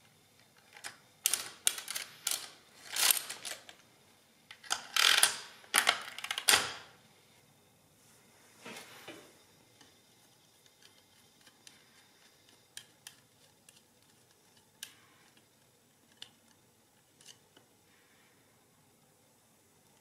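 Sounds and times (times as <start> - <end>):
mechanical calculator clicking: 0.7 - 3.8, 4.6 - 6.9.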